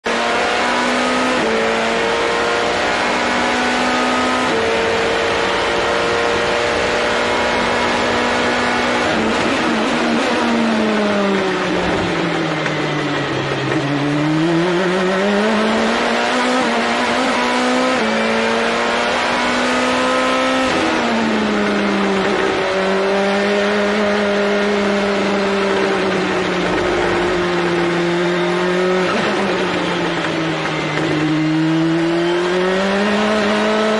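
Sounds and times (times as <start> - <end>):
race car engine: 0.0 - 33.9.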